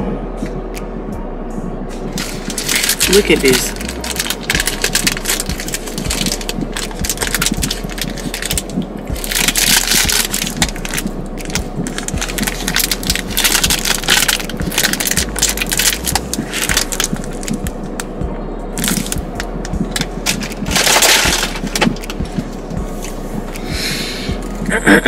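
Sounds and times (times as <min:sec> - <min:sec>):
crunching puffed rice: 0:02.2 - 0:18.1, 0:18.8 - 0:22.6.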